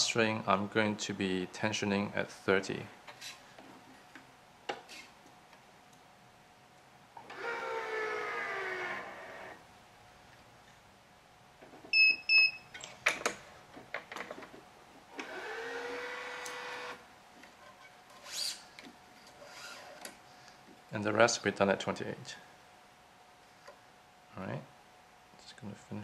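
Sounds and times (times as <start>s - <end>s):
motor whine falling in pitch: 7.2s - 9.6s.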